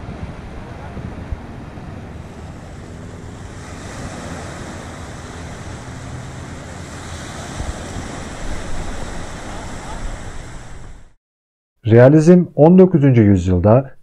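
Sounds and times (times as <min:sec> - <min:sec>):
waves washing onto sand: 0:00.0 - 0:11.2
wind buffeting microphone: 0:00.0 - 0:11.2.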